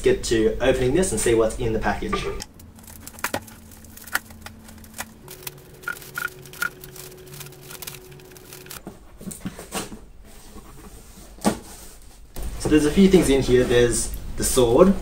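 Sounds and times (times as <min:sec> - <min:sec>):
bubble wrap and tape crackling: 0:02.4 - 0:08.8.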